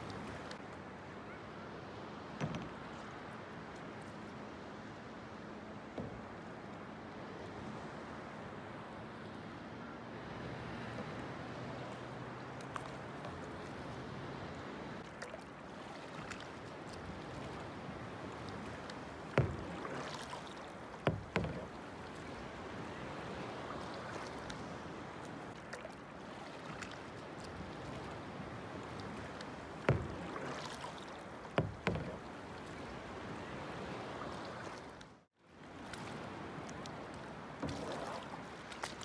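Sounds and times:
water lapping against paddleboard: 0.0s - 39.0s
sharp knocks: 31.6s - 32.2s.

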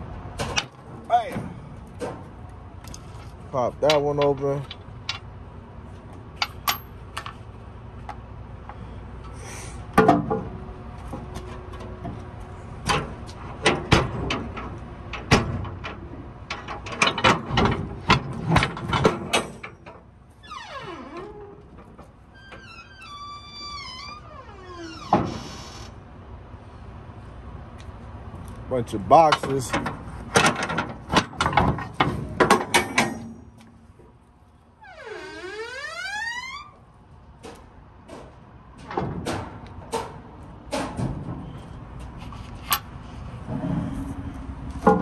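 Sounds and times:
metal clanks and knocks: 3.8s - 5.3s, 6.4s - 7.4s, 12.8s - 20.1s, 29.2s - 33.7s, 44.7s - 45.0s.

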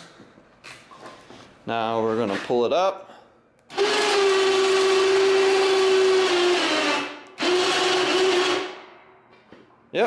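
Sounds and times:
electric winch motor whine: 3.7s - 8.7s.

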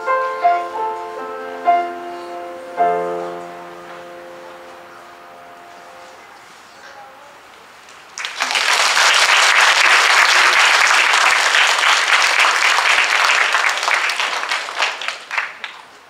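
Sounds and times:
audience applauding: 8.1s - 16.0s.

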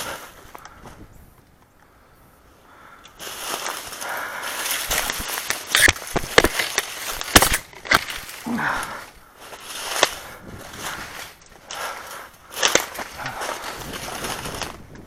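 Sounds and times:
twigs snapping: 2.7s - 15.0s
footsteps through dry leaves: 3.1s - 15.0s.

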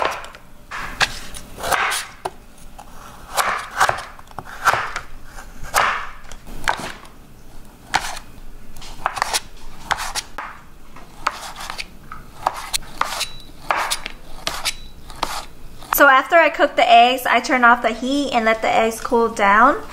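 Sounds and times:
knife slicing sausage: 7.9s - 10.3s, 11.1s - 16.0s.

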